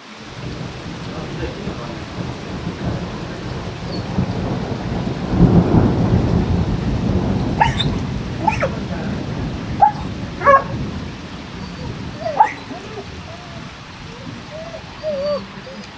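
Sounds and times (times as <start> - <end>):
steady rain: 0.0 - 15.9
thunder rumbling: 0.0 - 15.9
dog barking: 7.6 - 8.9, 9.8 - 10.8, 11.7 - 15.9.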